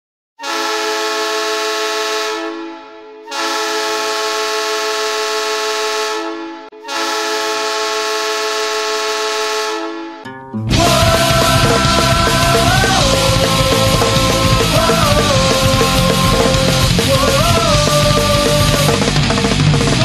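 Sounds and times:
hockey goal horn blasts: 0.4s - 10.3s.

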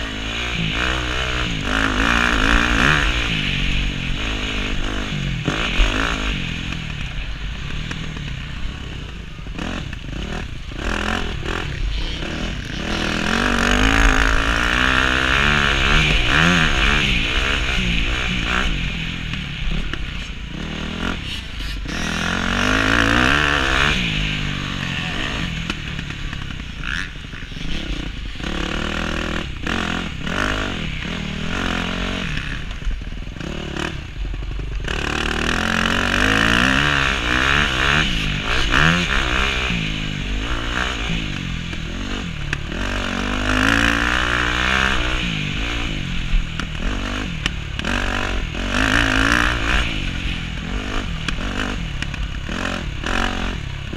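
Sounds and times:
steady rushing hiss: 0.0s - 23.2s
motocross engine revving: 0.0s - 53.9s.

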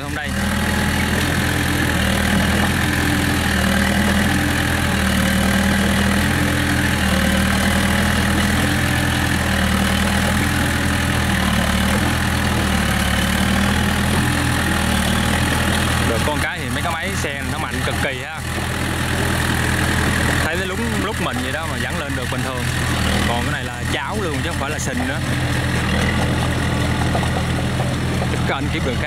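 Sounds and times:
diesel engine under load: 0.0s - 29.0s.

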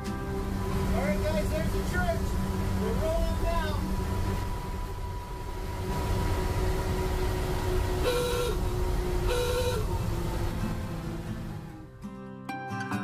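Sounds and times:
bus engine rumbling: 0.0s - 12.1s
bus horn toots: 7.9s - 10.3s.

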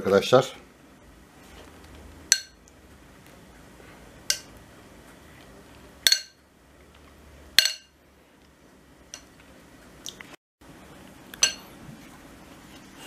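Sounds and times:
brush clinking on glass bowl: 11.4s - 11.8s.

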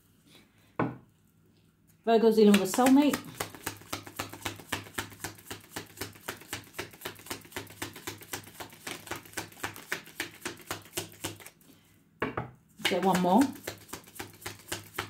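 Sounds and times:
cards being shuffled: 2.5s - 11.6s, 12.9s - 15.0s.

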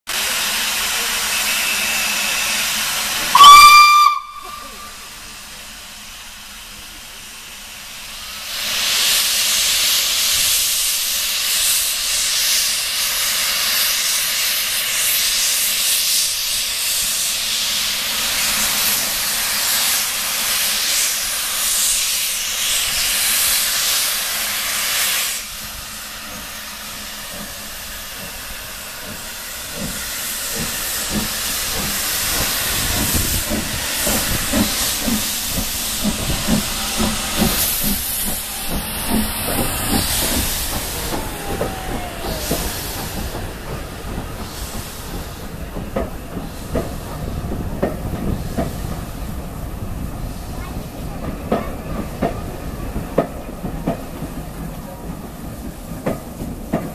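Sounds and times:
steam hissing: 0.1s - 56.9s
steam locomotive whistle: 1.2s - 5.2s, 36.2s - 43.8s.

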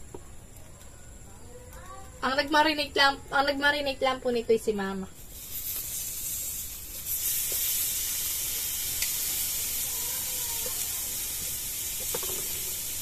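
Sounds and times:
chicken sizzling on a grill: 5.1s - 13.0s.

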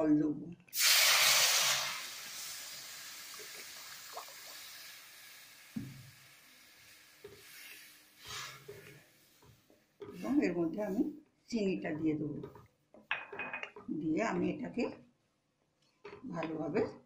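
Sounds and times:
water hissing in hot pan: 0.7s - 9.5s.

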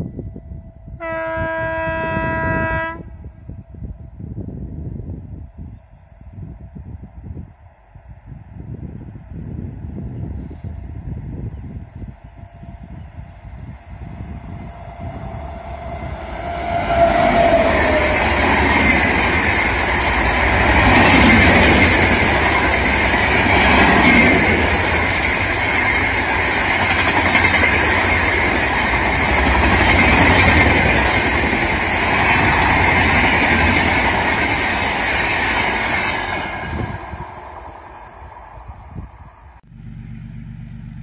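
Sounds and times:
train horn tone: 0.0s - 3.6s, 14.6s - 19.2s
train wheels rumbling on rails: 0.0s - 39.6s.

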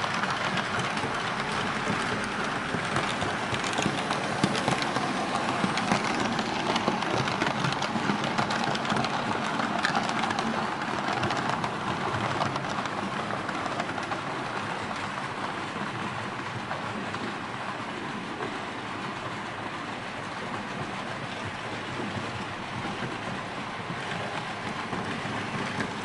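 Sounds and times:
model train wheels clattering: 0.0s - 15.2s.

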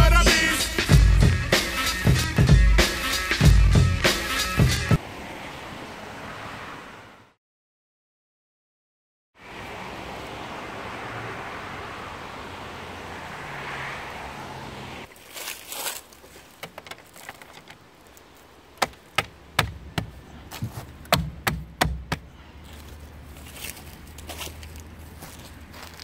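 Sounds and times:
road traffic rushing past: 0.2s - 7.4s, 9.4s - 16.5s, 17.8s - 26.0s
knocks and taps on car wheel: 18.8s - 22.3s.

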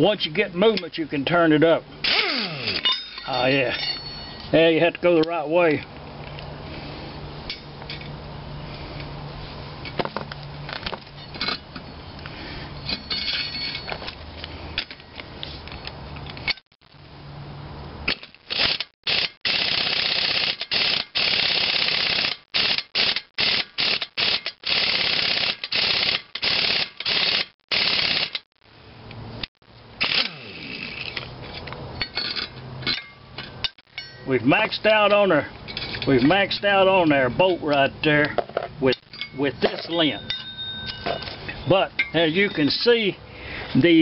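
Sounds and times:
pneumatic impact wrench hammering: 2.0s - 3.2s, 18.1s - 28.5s, 30.0s - 31.3s
metal clinks and tool handling: 2.7s - 4.7s, 9.8s - 16.7s, 31.0s - 36.6s, 37.4s - 43.1s.

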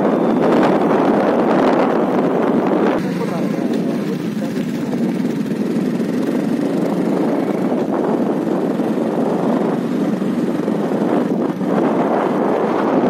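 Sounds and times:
road vehicle running: 0.0s - 13.0s
wind buffeting microphone: 0.0s - 13.0s.

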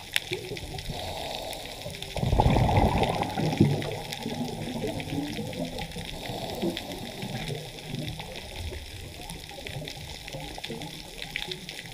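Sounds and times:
sharp crackling clicks: 0.0s - 11.9s
underwater bubbling and gurgling: 0.0s - 11.9s.

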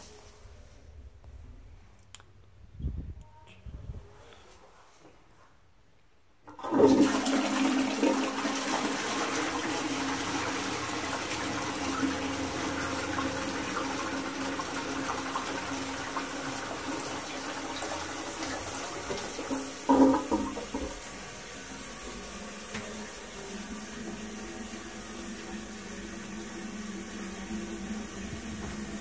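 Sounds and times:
toilet flushing: 6.5s - 29.0s.

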